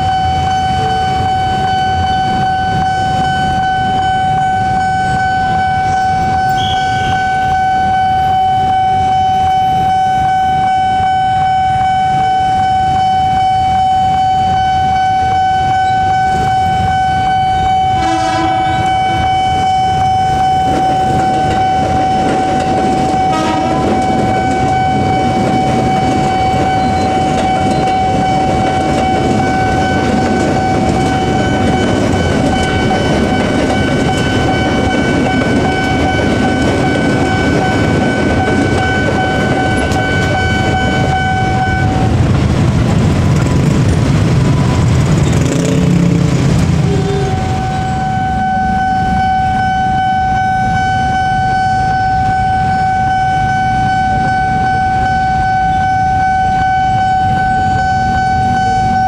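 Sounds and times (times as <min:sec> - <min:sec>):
train horn: 0:00.0 - 0:42.2, 0:44.6 - 0:59.0
level-crossing warning siren: 0:00.0 - 0:59.0
train wheels clacking over rails: 0:20.2 - 0:48.0
motorcycle engines: 0:39.1 - 0:49.6.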